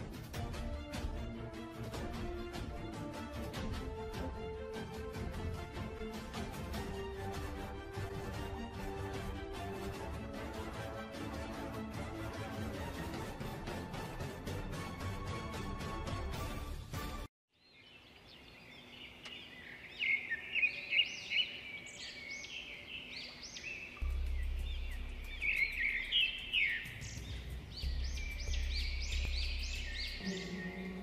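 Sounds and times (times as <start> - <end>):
background music: 0.0 - 17.3, 23.6 - 31.0
birds chirping: 17.5 - 31.0.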